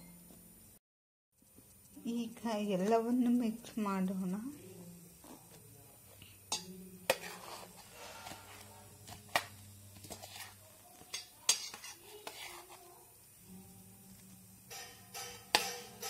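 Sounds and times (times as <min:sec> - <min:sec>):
metal spoon scraping a steel plate: 0:06.5 - 0:09.4, 0:10.0 - 0:12.8, 0:14.7 - 0:16.0.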